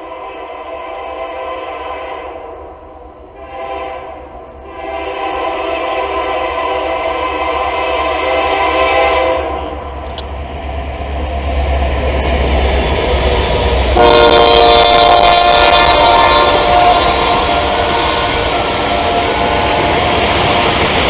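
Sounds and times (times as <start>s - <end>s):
locomotive air horn chord: 0.0s - 2.7s, 3.3s - 9.9s, 13.9s - 19.9s
diesel locomotives rumbling: 0.0s - 21.0s.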